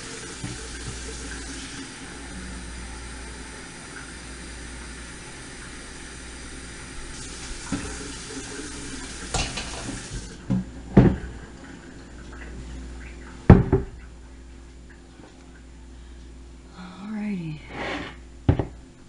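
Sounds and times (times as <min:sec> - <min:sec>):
kitchen tap running: 0:00.0 - 0:12.6
kitchenware knocking and clunking: 0:09.3 - 0:10.0, 0:18.5 - 0:18.8.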